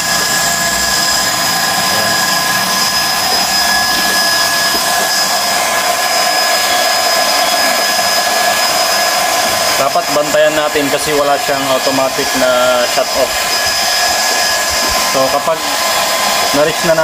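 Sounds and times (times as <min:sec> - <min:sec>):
air compressor running: 0:00.0 - 0:17.0.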